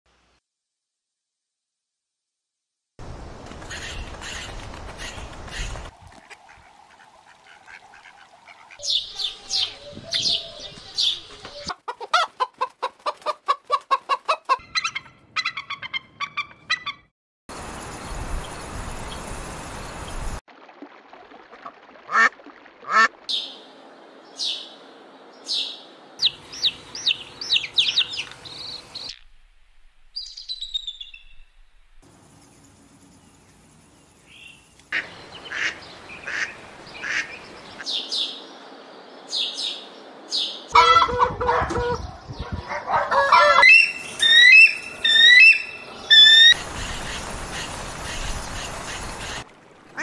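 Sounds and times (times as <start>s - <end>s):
rising and falling bird calls: 6.6s - 11.7s, 24.3s - 29.2s, 30.2s - 31.5s, 39.2s - 49.0s
bird chirps and whistles: 30.2s - 31.4s, 43.6s - 46.6s
bird honking calls: 40.7s - 42.0s, 43.1s - 49.4s.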